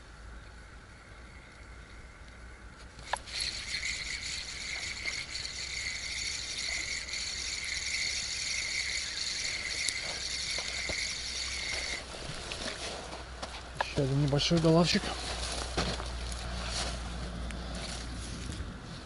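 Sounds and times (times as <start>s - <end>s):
fishing reel whirring: 3.0s - 12.7s.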